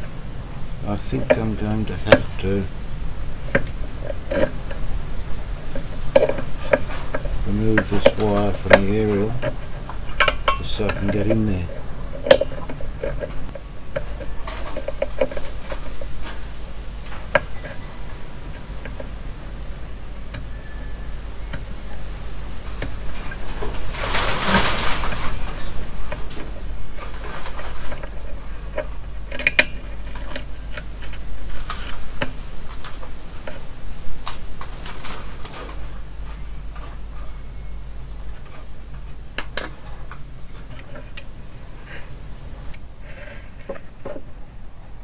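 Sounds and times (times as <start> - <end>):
steady low hum: 0.0 - 45.0
hand tools clicking on metal: 6.1 - 11.6, 28.8 - 31.2.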